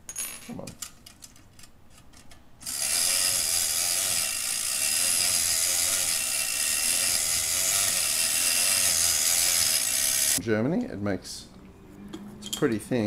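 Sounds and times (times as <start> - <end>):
clockwork toy motor whirring: 2.6 - 10.4.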